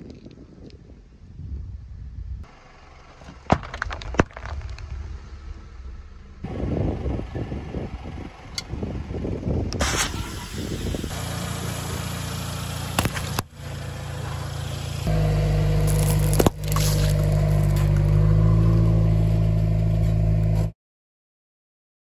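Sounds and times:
car engine running: 2.5s - 20.7s
drink carton crushed crack: 3.4s - 4.9s, 15.8s - 18.2s.

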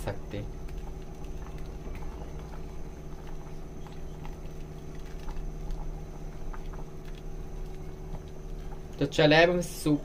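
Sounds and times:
steady low hum: 0.0s - 10.0s
soup simmering: 0.1s - 9.9s.

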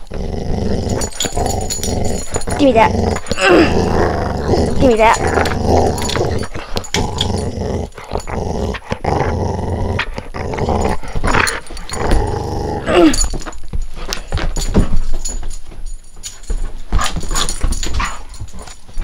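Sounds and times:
dog growling: 0.0s - 13.4s.

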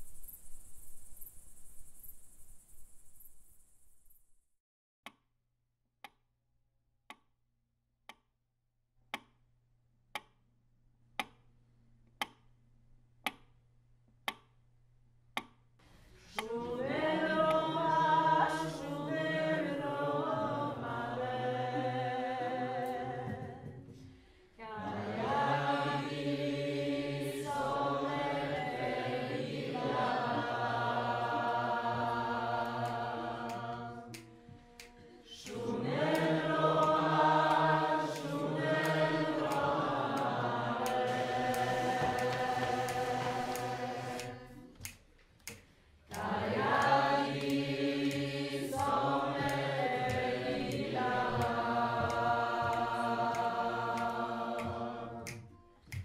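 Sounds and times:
clock ticking: 9.1s - 9.4s, 10.1s - 10.4s, 11.2s - 11.4s, 14.2s - 14.5s
group singing in harmony: 16.3s - 44.7s, 46.1s - 55.6s.

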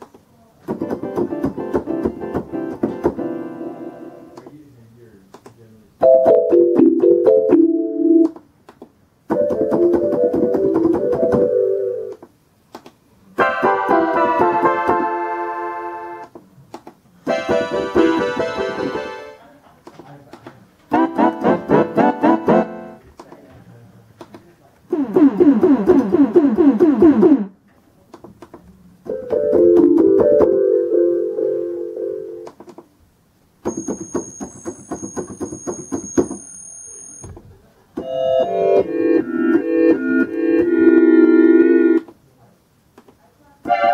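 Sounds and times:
electronic keyboard notes: 6.0s - 8.4s, 9.3s - 12.2s, 13.4s - 16.3s, 17.3s - 19.4s, 20.9s - 23.0s, 29.1s - 32.5s, 38.0s - 42.1s, 43.7s - 43.9s
keyboard short struck notes: 6.0s - 8.4s
steady high tones: 33.6s - 37.3s.

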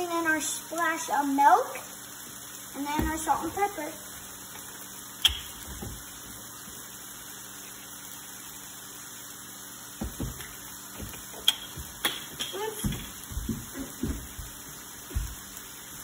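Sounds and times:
carton knocking on wooden board: 10.0s - 14.5s.

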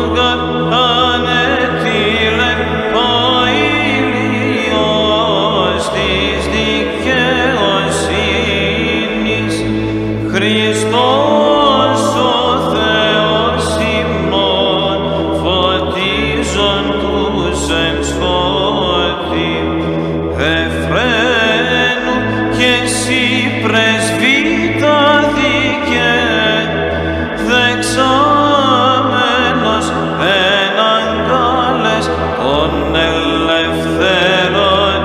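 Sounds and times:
low sustained vocal drone: 0.0s - 35.0s
man singing chant: 0.0s - 35.0s.

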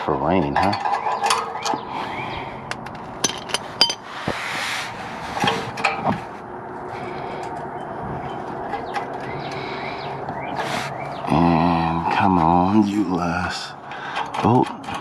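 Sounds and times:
scraping rustle: 3.3s - 9.7s, 10.6s - 11.0s.

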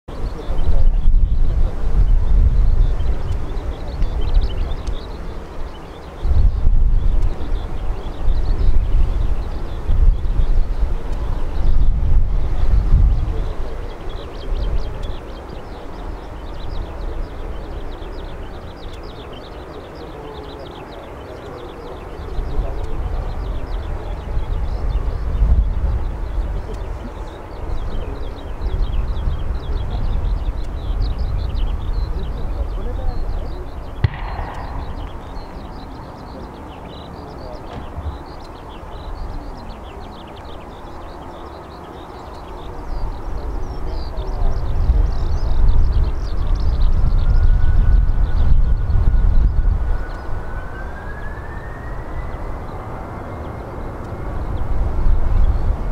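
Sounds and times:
bird chirping: 0.1s - 55.9s
distant jet engines taxiing: 0.1s - 55.9s.

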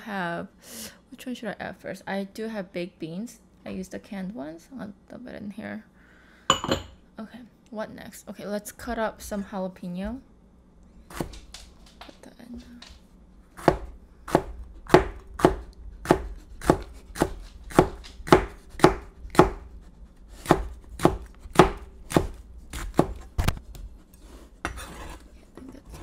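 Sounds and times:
knife chopping on plastic board: 13.6s - 19.7s, 20.4s - 23.6s
knife scraping cutting board: 16.3s - 26.0s.

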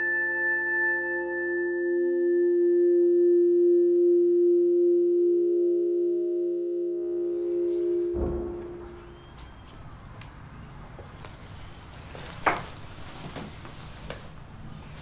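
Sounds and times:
sustained pure tone drone: 0.0s - 9.3s
soft low pulse: 2.0s - 9.2s.

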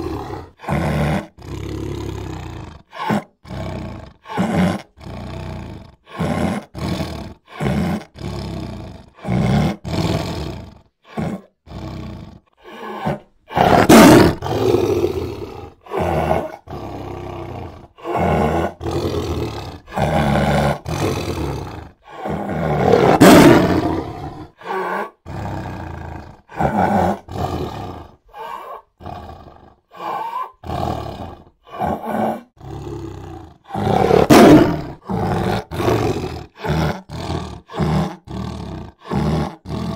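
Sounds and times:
big cats roaring: 0.0s - 39.9s.

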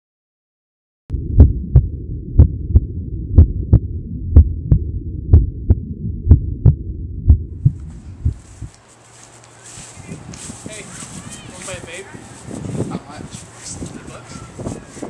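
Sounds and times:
heartbeat double thumps: 1.1s - 8.7s
steady low hum: 1.1s - 9.4s.

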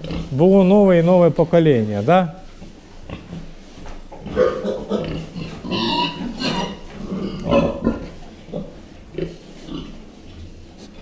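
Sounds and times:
pigs grunting: 0.0s - 0.5s, 4.2s - 10.1s.

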